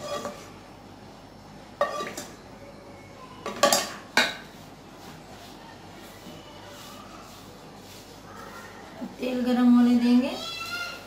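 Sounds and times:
utensils clinking against metal pan: 1.8 - 2.4, 3.4 - 4.5.

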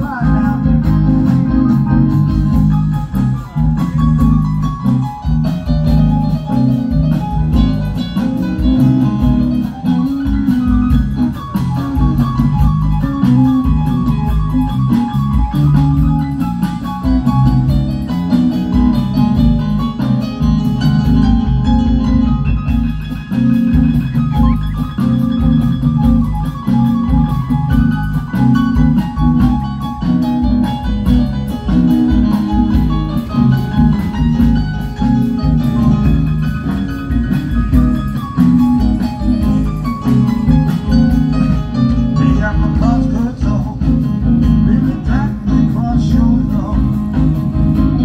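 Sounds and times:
band music: 0.0 - 48.0.

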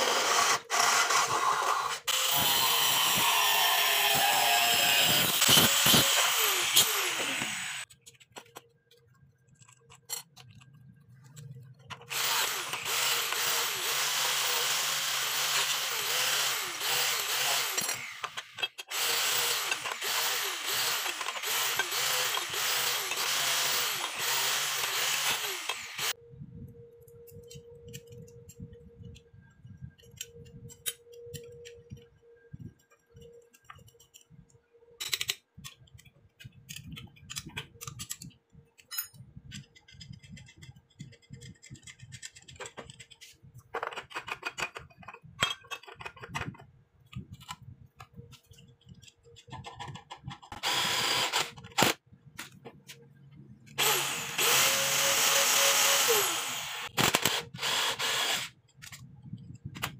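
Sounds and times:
angle grinder on steel: 0.0 - 7.9, 12.1 - 26.2, 50.6 - 51.9, 53.8 - 58.6.

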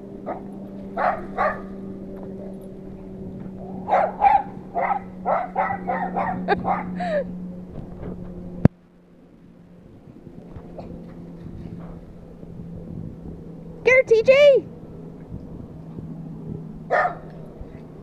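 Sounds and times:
steady low hum: 0.0 - 18.0
dog barking: 1.0 - 1.7, 3.9 - 7.0, 16.9 - 17.3.

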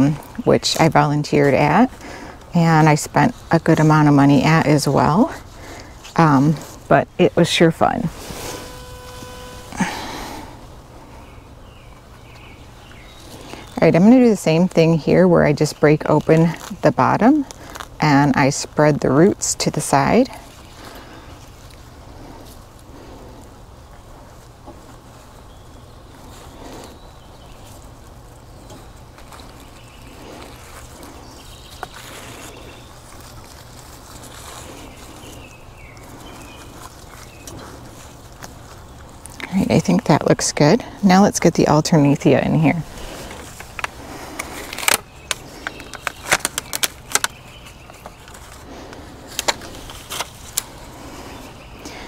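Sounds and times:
gloved hands rustling soil: 0.0 - 52.0
low outdoor hum: 0.0 - 52.0
plastic pot crackling and clicking: 43.2 - 50.8.

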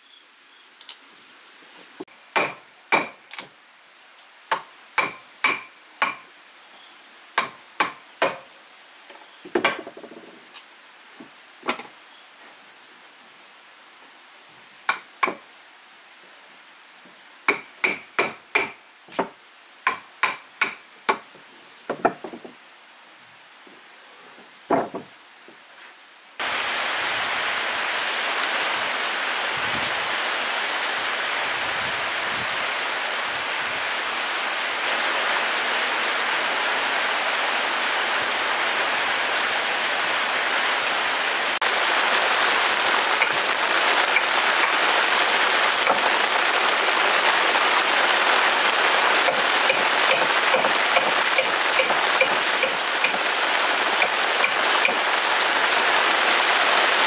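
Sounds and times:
hammering on wood: 2.3 - 3.2, 4.5 - 6.2, 7.4 - 8.5, 14.9 - 15.4, 17.5 - 21.2, 49.2 - 53.2
rain hissing: 22.7 - 57.0.

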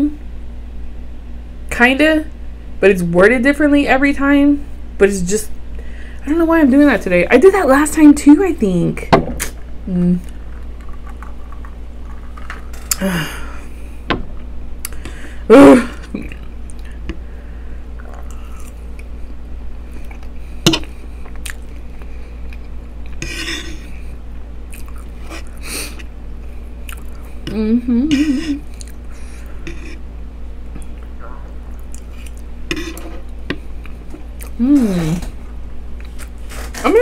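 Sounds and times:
wavering hum: 8.7 - 36.0
person chewing and swallowing: 17.9 - 19.1, 20.0 - 23.2, 24.7 - 26.0, 26.8 - 27.5, 28.1 - 29.1, 30.7 - 32.5.

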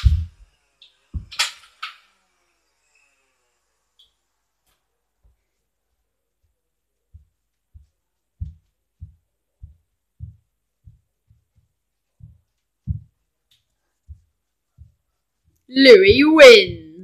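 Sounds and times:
feet stamping on wooden floor: 0.0 - 0.4, 1.2 - 1.4, 7.1 - 13.2.

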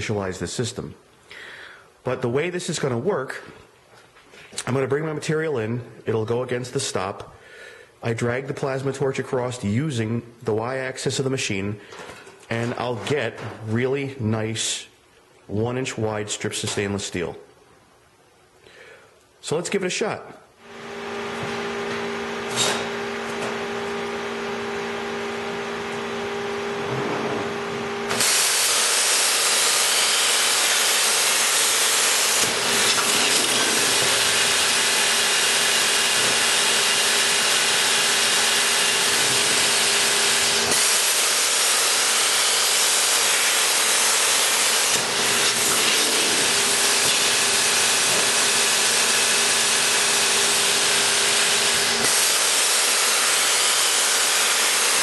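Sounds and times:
electrical hum: 20.2 - 41.2
plasma cutter torch hissing: 28.1 - 55.0.

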